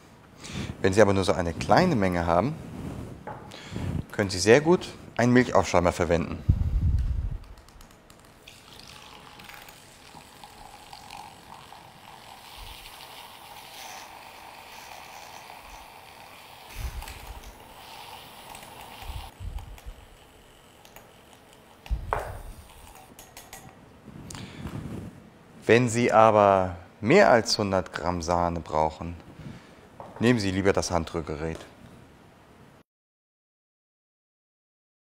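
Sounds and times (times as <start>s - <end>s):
milk frother whirring: 8.2s - 23.8s.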